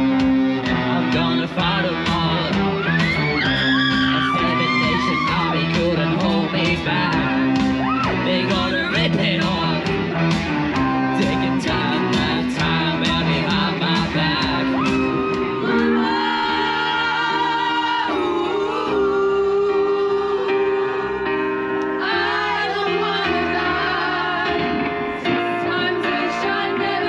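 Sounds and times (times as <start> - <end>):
live rock band playing: 0.0 - 27.0
singer on microphone: 0.0 - 27.0
several voices singing together: 15.6 - 21.2, 22.0 - 27.0.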